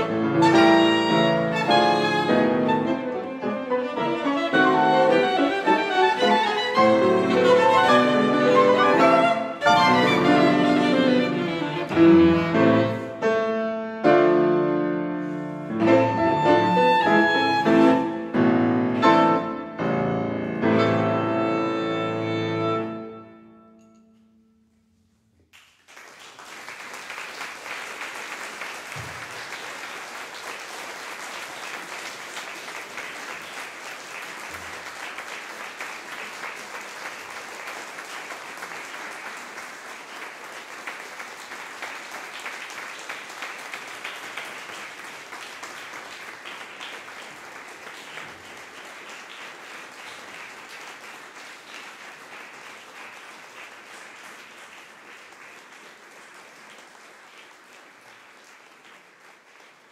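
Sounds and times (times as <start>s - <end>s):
audience applause: 0.0s - 13.1s, 25.6s - 59.9s.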